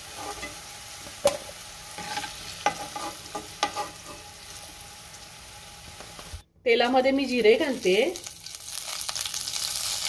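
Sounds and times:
potatoes sizzling in hot oil: 0.0 - 6.4, 7.1 - 10.0
metal spoon scraping and tapping pan: 0.2 - 0.6, 2.0 - 4.2.

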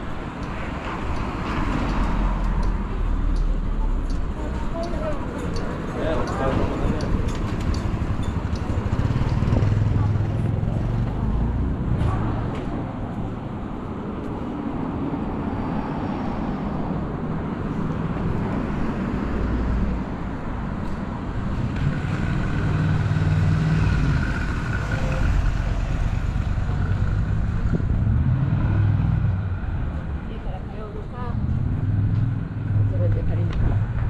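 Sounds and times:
vehicles passing on road: 0.0 - 34.0.

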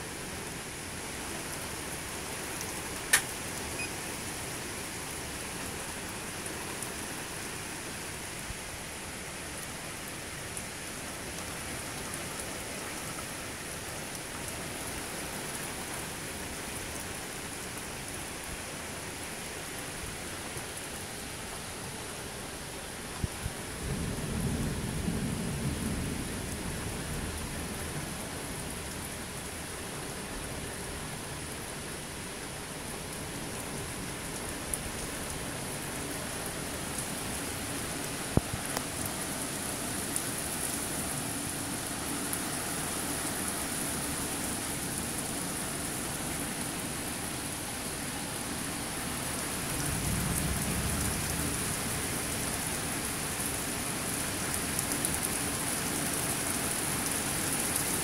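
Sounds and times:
heavy rain falling on trees: 0.0 - 58.0
sharp ticks of raindrops: 0.1 - 58.0
low thunder rumbles: 49.8 - 51.6.

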